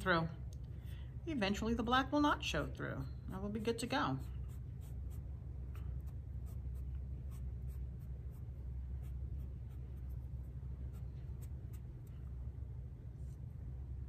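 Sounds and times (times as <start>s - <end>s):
steady low hum: 0.0s - 14.0s
foam brush stroking paint: 3.4s - 12.2s.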